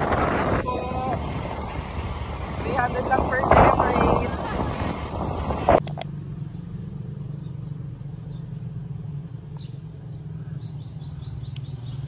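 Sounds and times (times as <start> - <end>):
wind and motor noise: 0.0 - 12.0
sharp clicks: 5.8 - 6.1
bird chirps: 6.3 - 12.0.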